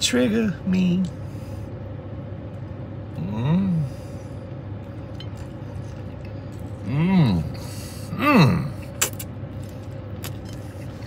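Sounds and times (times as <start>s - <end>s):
man humming mmm while eating: 3.2s - 3.9s, 6.8s - 9.2s.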